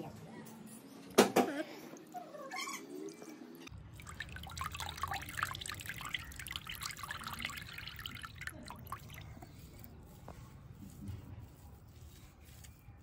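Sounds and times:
liquid dripping into a bowl: 3.7 - 9.5.

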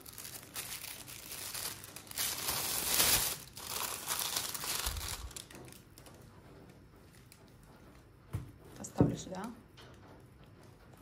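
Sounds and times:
tissue paper crinkling: 0.0 - 6.1.

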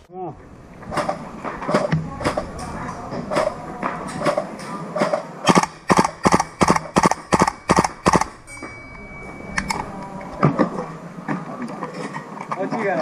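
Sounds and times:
airsoft gun shots: 5.4 - 8.4
steady high tone: 5.5 - 11.2.

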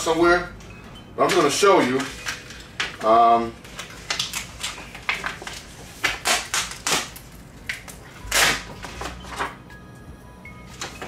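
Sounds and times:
plastic sheet rustling: 1.2 - 9.3.

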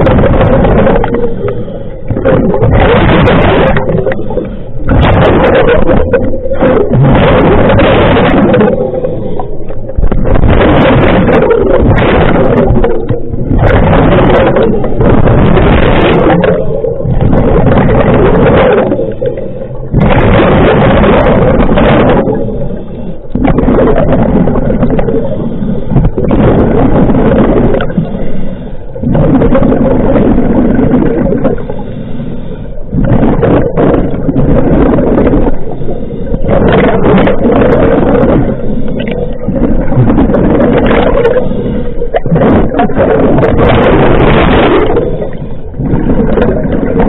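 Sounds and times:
exhaled bubbles rushing: 0.0 - 47.0
scuba regulator breathing underwater: 40.5 - 43.5.

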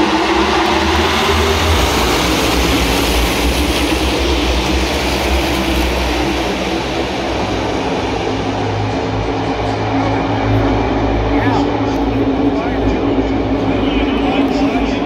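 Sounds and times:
race cars roaring past: 0.0 - 15.0.

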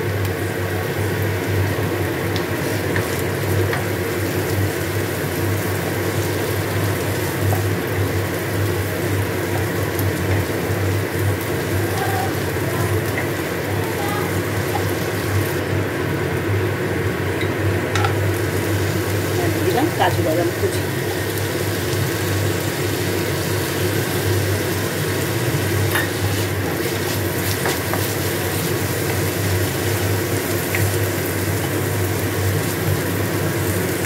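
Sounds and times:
onions sizzling in oil: 0.0 - 34.0.

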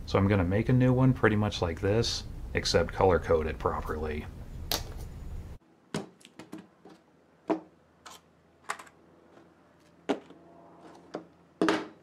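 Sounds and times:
objects knocking on a workbench: 11.6 - 12.0.

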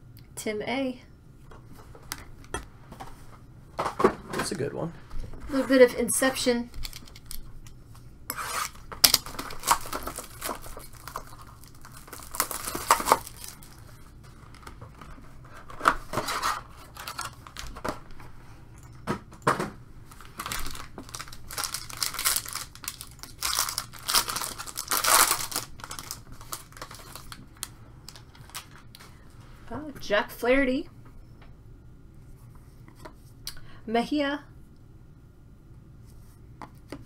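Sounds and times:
plastic wrap crinkling and tearing: 8.6 - 15.0, 15.7 - 18.0, 20.1 - 29.0.

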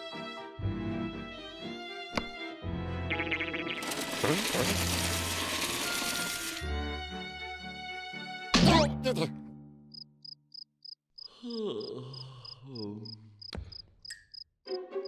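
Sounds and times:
cartoon cricket chirping: 9.9 - 15.0.

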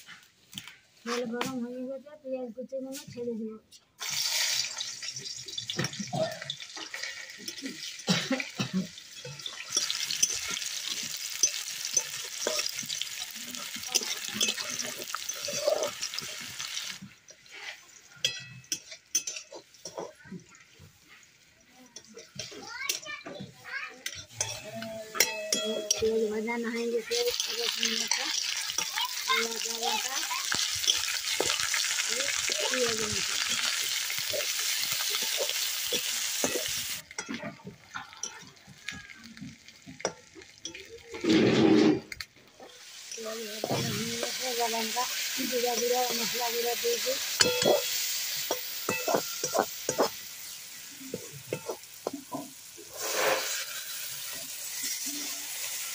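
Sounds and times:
onions sizzling in hot oil: 4.0 - 55.9
metal spatula scraping pan: 9.1 - 20.2, 24.0 - 37.4, 40.0 - 50.2, 51.1 - 55.8
ladle scraping metal pan: 41.1 - 44.4, 51.1 - 55.3.

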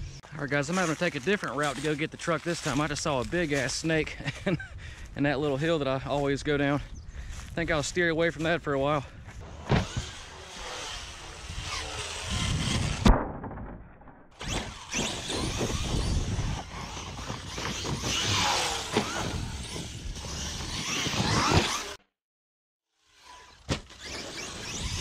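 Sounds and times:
electric motor whining: 9.4 - 13.1, 14.4 - 22.0, 23.0 - 25.0
sharp thump: 9.6 - 10.2.

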